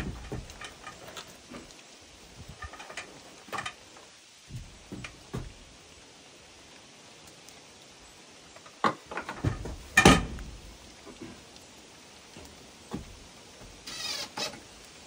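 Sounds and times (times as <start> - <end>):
light knocks and clunks: 0.0 - 1.8, 2.4 - 5.8, 8.8 - 11.4, 12.3 - 13.8.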